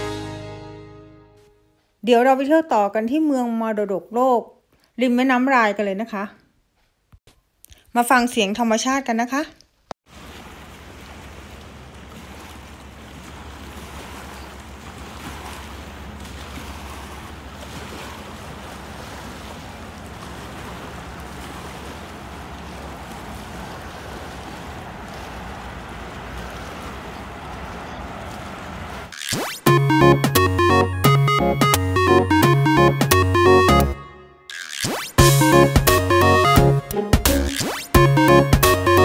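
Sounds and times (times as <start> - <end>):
small waves washing on shore: 10.0 - 29.2.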